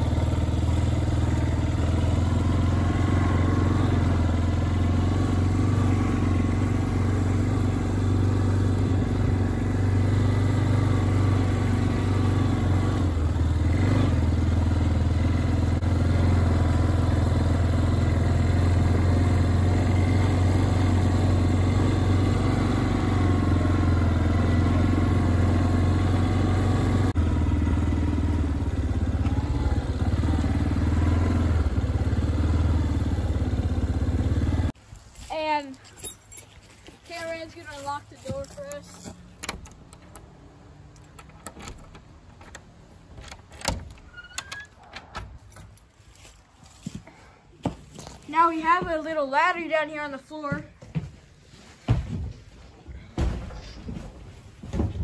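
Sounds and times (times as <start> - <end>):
vehicle engine running: 0.0 - 34.8.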